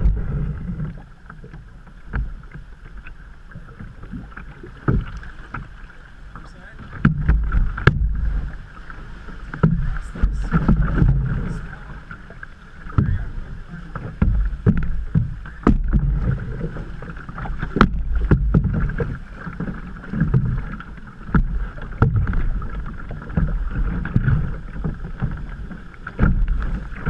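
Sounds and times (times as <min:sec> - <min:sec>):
steady low rumble: 0:00.0 - 0:01.1, 0:06.3 - 0:19.4
paddle splashes and knocks: 0:00.0 - 0:27.0
water rushing along hull: 0:00.0 - 0:27.0.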